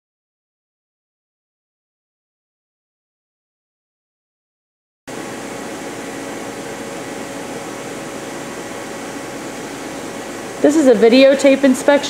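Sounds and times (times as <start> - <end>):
machine shop hum and hiss: 5.1 - 12.0.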